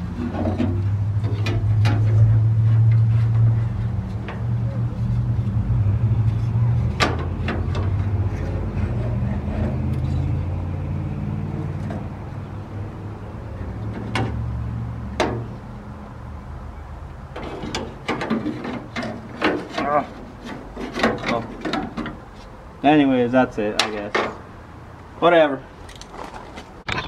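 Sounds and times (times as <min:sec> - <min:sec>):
metal clicks and rattles: 0:25.8 - 0:27.0.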